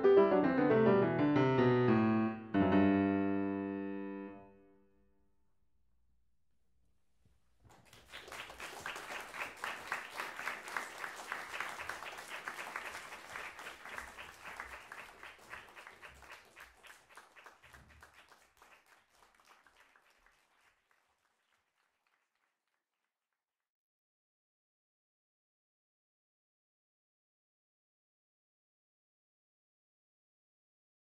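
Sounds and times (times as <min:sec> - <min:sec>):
audience applauding: 0:07.6 - 0:22.8.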